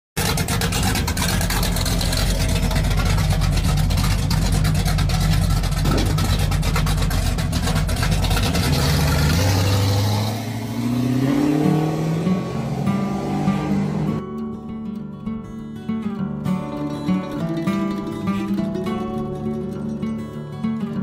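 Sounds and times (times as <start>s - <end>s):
car engine rumbling: 0.2s - 14.2s.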